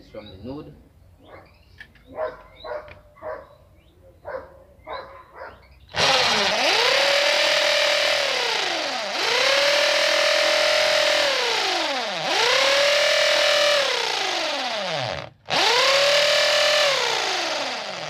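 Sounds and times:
electric drill boring into bamboo: 5.9 - 18.0.

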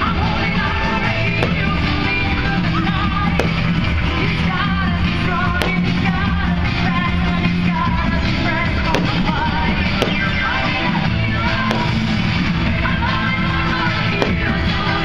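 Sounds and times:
loud rock music with singing: 0.0 - 15.0
firework cracks: 5.4 - 6.4, 8.8 - 12.4.

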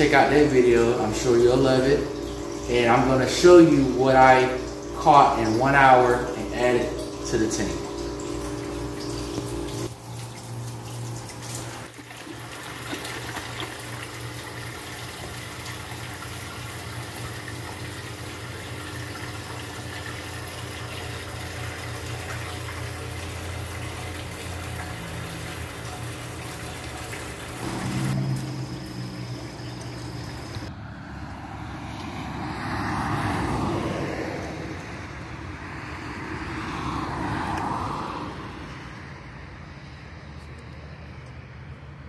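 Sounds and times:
hose water splashing into tank: 0.0 - 30.7.

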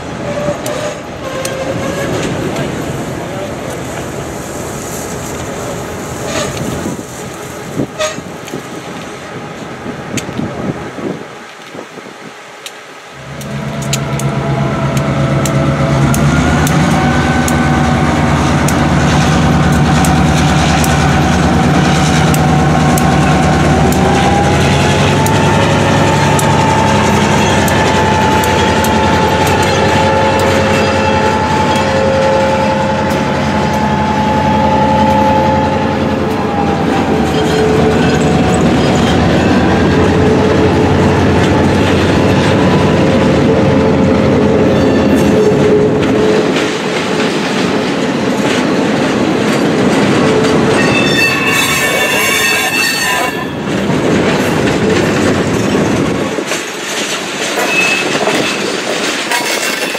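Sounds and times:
diesel locomotive engine: 0.0 - 59.9
steady whining tones: 13.0 - 44.8.

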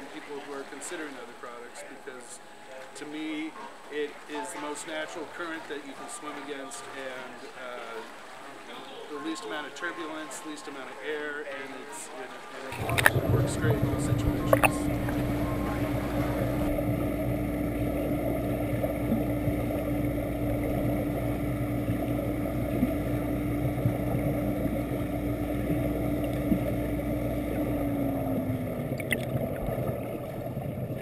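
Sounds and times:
rush of pumped water: 0.0 - 31.0
motor hum: 12.7 - 31.0.

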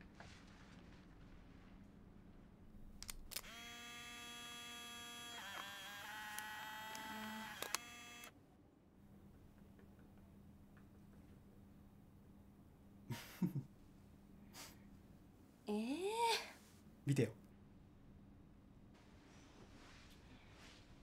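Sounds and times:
camera motor whirring: 3.3 - 8.3
camera shutter click: 5.4 - 8.3.

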